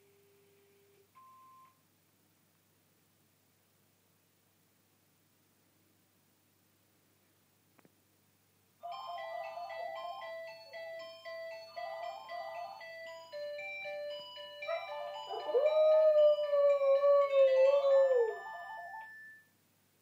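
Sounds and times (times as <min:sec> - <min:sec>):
melodic phone ringtone: 0:08.8 - 0:19.5
dog howling: 0:14.7 - 0:18.9.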